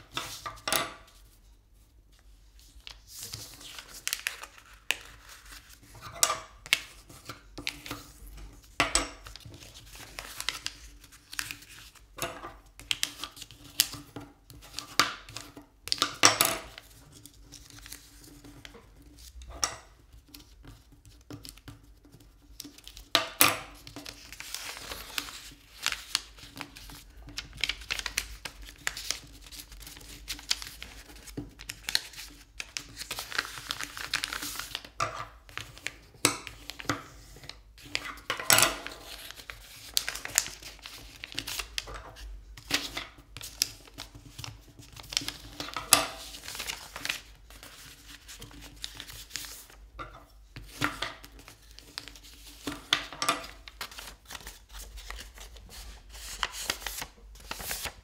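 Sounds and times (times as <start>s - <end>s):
paper being folded and creased: 2.1s - 58.0s.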